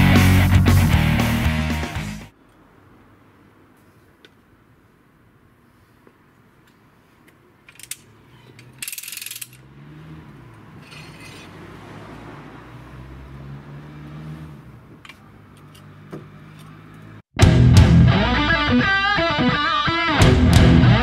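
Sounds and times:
jack metallic clicks: 7.3s - 9.7s
rattling clatters: 7.7s - 9.7s, 10.8s - 11.6s.

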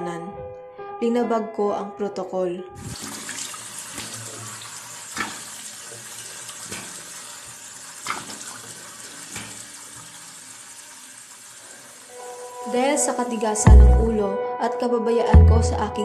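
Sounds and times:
water running from tap: 2.8s - 12.9s.

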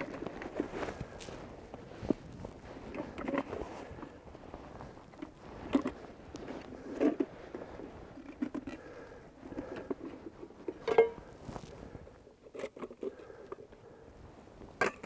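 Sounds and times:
rustling and crunching in snow: 0.0s - 9.4s, 10.0s - 12.5s
metal pot clink: 10.8s - 11.2s.

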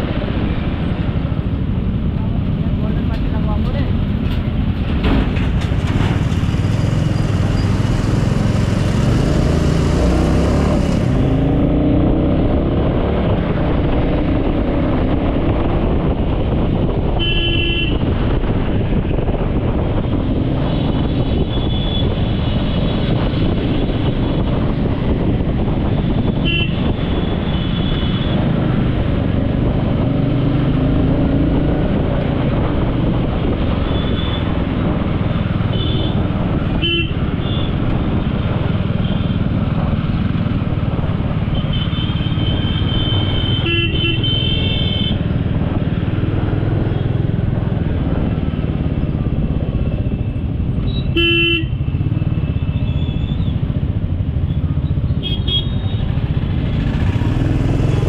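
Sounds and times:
traffic rumble: 0.0s - 58.0s
vehicle horns honking: 17.2s - 18.1s, 26.4s - 28.4s, 35.7s - 36.2s, 36.8s - 37.7s, 41.5s - 45.2s, 51.1s - 51.8s, 55.2s - 56.1s.

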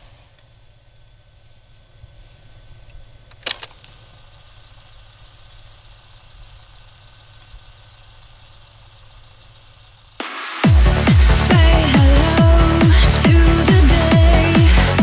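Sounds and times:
low hum with hiss: 0.0s - 10.2s
sharp mechanical click: 3.3s - 4.1s.

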